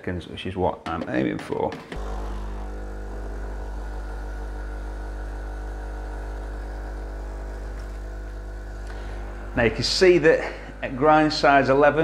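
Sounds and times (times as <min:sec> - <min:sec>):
espresso machine pump humming: 0:01.9 - 0:11.9.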